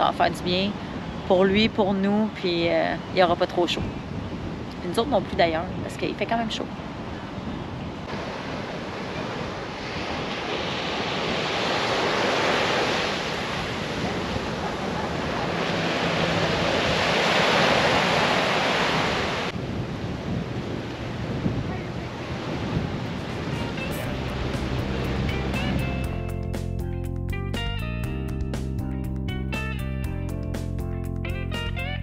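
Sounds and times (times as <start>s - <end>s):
wind buffeting microphone: 0.0s - 26.5s
small waves breaking on beach: 6.3s - 25.6s.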